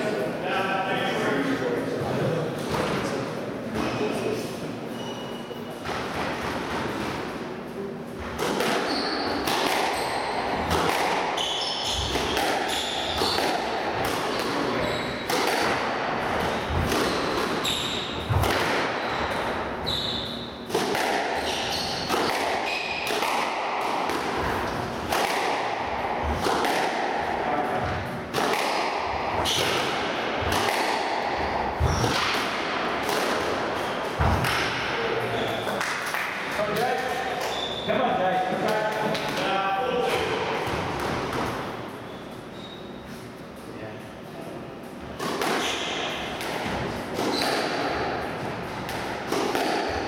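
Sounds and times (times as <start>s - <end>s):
squash ball striking rackets and walls: 5.7s - 42.8s, 44.8s - 50.0s
shoes squeaking on wooden floor: 8.8s - 10.2s, 14.7s - 15.3s, 16.8s - 18.3s, 19.0s - 20.5s.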